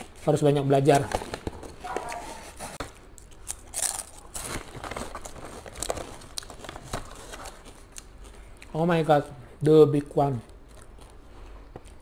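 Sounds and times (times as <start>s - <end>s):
crisps crunching while chewed: 3.0s - 8.8s, 10.3s - 12.0s
snack bag crinkling: 3.2s - 8.4s.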